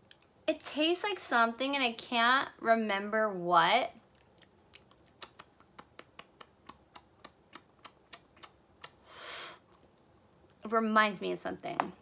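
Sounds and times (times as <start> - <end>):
mouth smacking: 4.1 - 9.1
short breath: 9.0 - 9.6.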